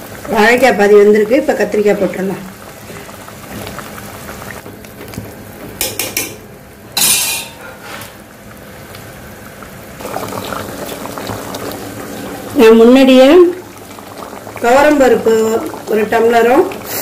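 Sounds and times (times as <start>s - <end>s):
curry bubbling: 0.0s - 5.6s, 8.2s - 17.0s.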